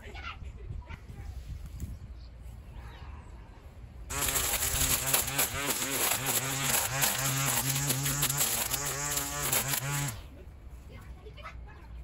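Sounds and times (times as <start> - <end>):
electric trimmer buzzing: 4.1 - 10.3.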